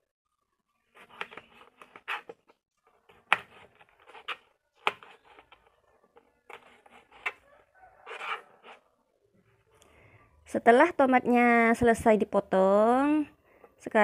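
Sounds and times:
knife slicing tomatoes: 1.0 - 5.8.

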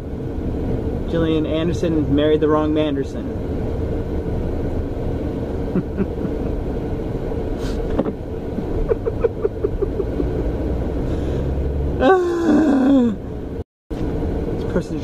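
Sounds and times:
car cabin rumble: 0.2 - 12.6
man chuckling: 5.7 - 6.6, 7.7 - 10.6, 12.0 - 13.2.

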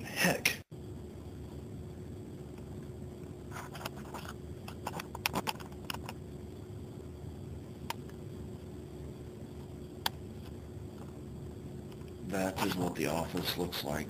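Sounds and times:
low room hum: 0.0 - 14.0
camera handling clicks and rustles: 3.7 - 6.2.

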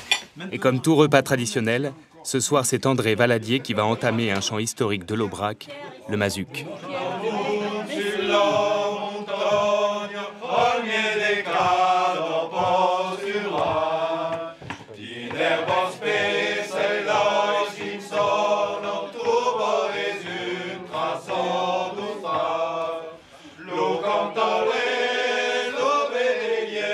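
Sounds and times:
man singing unaccompanied: 3.0 - 26.9
breaths: 14.5 - 15.0, 23.1 - 23.7.

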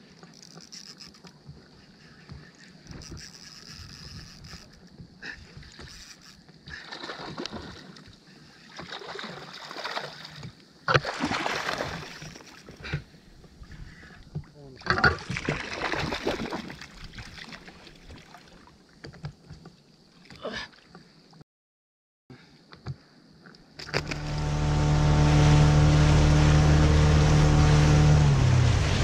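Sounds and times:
water splashing against boat hull: 6.6 - 19.6.

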